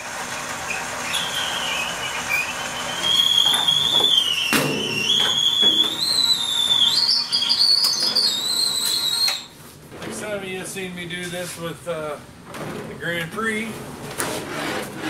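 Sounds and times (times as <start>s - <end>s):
electric hoist motor whining: 0.0s - 9.6s
metal clank: 4.5s - 5.9s.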